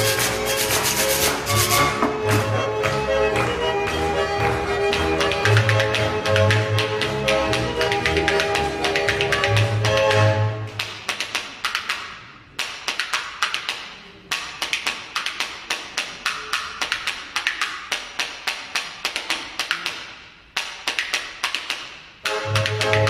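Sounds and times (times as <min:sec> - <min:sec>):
band melody instruments: 0:00.0 - 0:10.8, 0:22.3 - 0:23.0.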